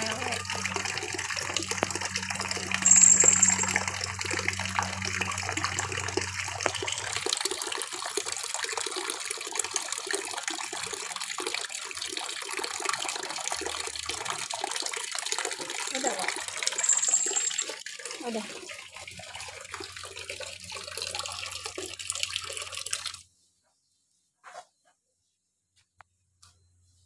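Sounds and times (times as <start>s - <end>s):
tap water splashing into basin: 0.0s - 2.8s, 3.5s - 16.7s
low hum: 0.0s - 7.2s
brief high-pitched sound: 1.5s - 5.0s.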